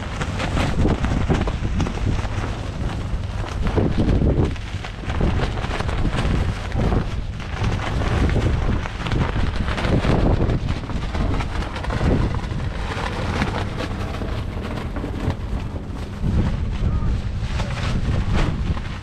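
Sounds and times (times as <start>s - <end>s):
wind buffeting microphone: 0.0s - 19.0s
diesel engine running: 6.0s - 19.0s.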